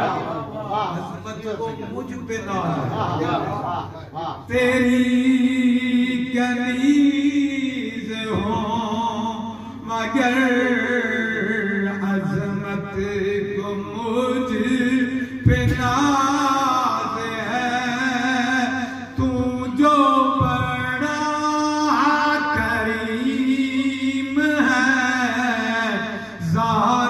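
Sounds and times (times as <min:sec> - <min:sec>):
man chanting over loudspeakers: 0:00.0 - 0:27.0.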